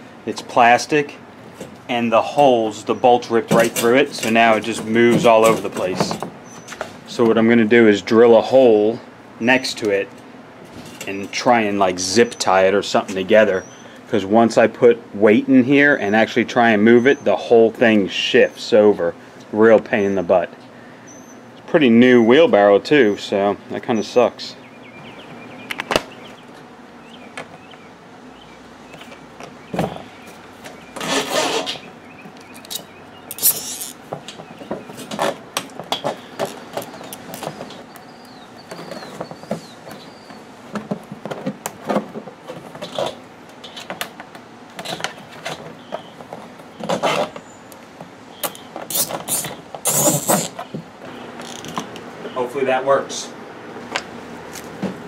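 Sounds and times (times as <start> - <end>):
knocks and scrapes on plastic: 38.7 - 43.2.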